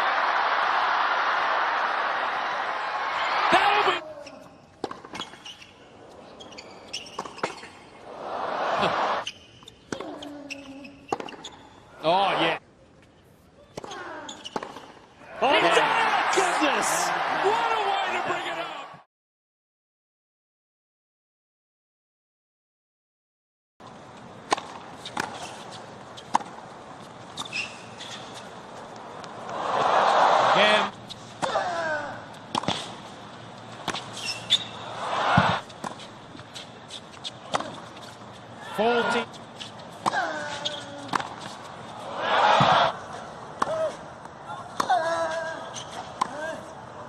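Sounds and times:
crowd noise: 0.0s - 4.0s, 7.9s - 9.2s, 15.2s - 19.0s, 28.4s - 31.5s, 32.2s - 44.8s
tennis ball pocks: 32.4s - 33.0s, 41.0s - 41.8s
racquet striking tennis ball: 32.5s - 33.0s, 33.8s - 36.1s, 41.1s - 41.6s.

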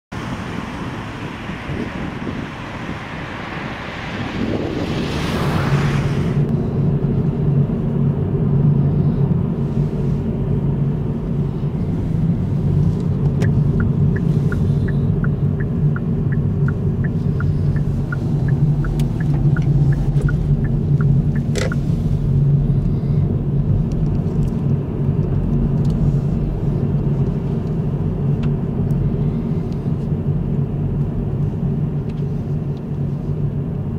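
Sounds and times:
car engine and road noise: 0.0s - 33.9s
turn signal ticking: 12.6s - 22.0s.

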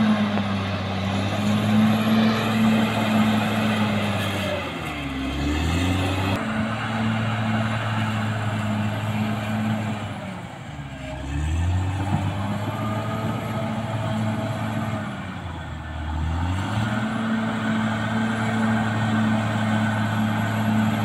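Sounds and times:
bulldozer diesel engine running: 0.0s - 21.0s.

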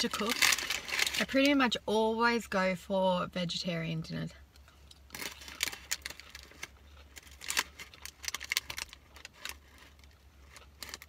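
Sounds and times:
paper packaging crinkling: 0.0s - 1.6s, 5.1s - 11.0s.

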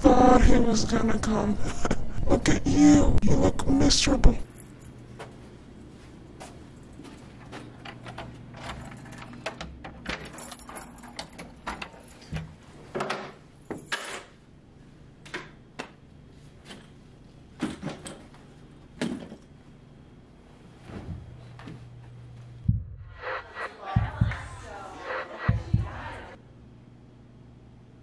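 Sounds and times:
keys jangling: 4.4s - 5.1s, 6.8s - 12.4s
door unlocking clicks and rattles: 7.8s - 14.1s.

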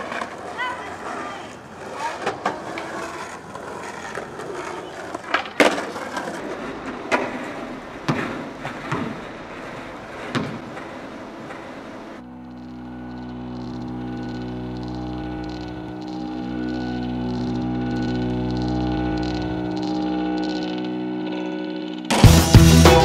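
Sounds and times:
skateboard wheels rolling on concrete: 0.0s - 23.0s
music: 12.2s - 23.0s.

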